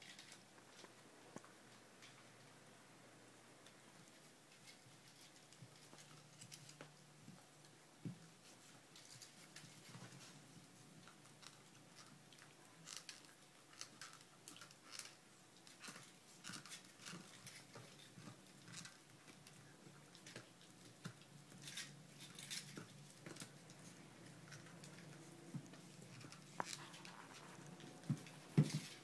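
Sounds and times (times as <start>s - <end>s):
dog teeth gnawing on bone: 11.0s - 29.0s.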